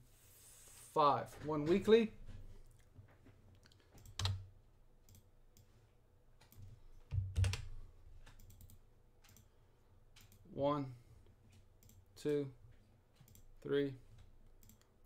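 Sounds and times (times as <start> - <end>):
keyboard keystrokes: 4.0 - 4.4, 6.5 - 7.7.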